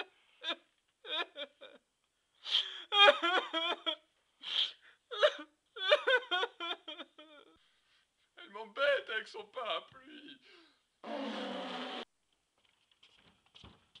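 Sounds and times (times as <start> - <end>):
man sobbing and wailing: 0.0 - 1.9, 2.5 - 4.1, 5.0 - 7.6.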